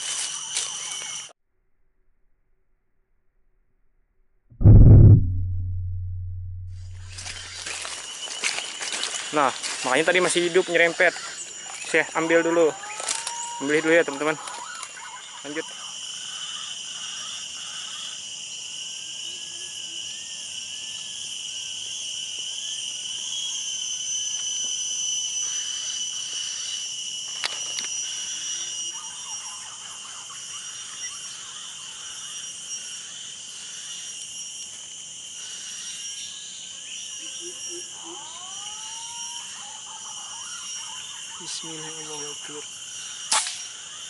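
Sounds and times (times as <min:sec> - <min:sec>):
insects droning: 0:00.0 - 0:01.4, 0:06.8 - 0:44.0
sharp click: 0:43.3 - 0:43.6.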